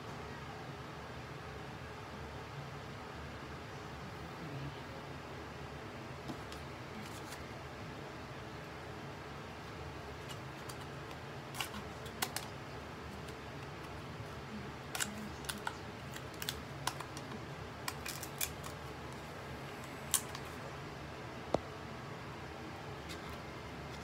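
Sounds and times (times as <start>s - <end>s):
wrapping crinkles: 14.8s - 20.6s.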